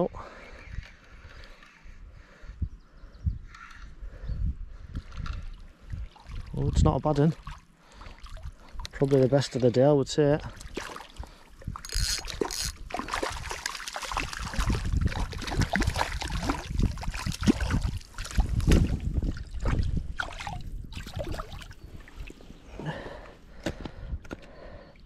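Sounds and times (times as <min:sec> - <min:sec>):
water splashing at shoreline: 0:07.2 - 0:09.9, 0:10.5 - 0:22.4.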